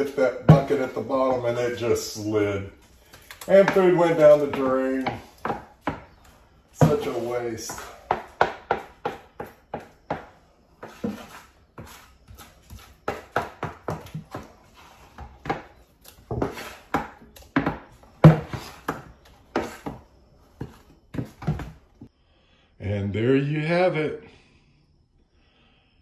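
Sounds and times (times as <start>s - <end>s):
utensil knocking and scraping container: 6.8s - 21.7s.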